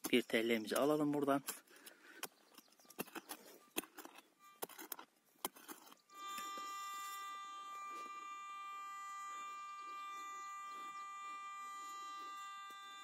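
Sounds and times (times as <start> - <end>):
metal detector tone: 6.1 - 13.0.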